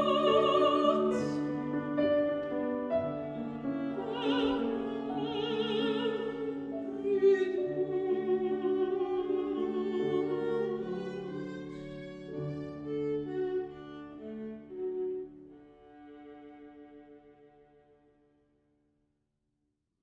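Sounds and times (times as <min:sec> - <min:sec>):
woman singing: 0:00.0 - 0:01.8, 0:03.9 - 0:11.3
piano accompaniment: 0:00.0 - 0:17.0
bowed viola: 0:00.0 - 0:18.3.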